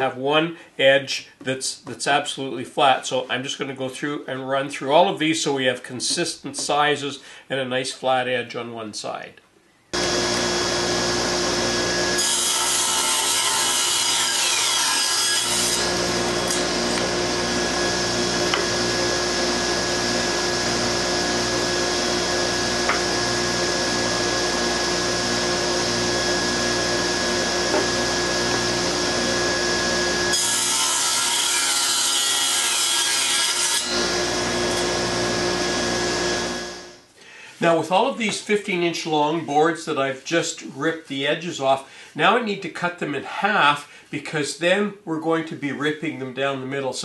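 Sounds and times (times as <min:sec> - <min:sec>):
saw cutting wood boards: 0:10.0 - 0:36.9
table saw motor hum: 0:10.0 - 0:37.0.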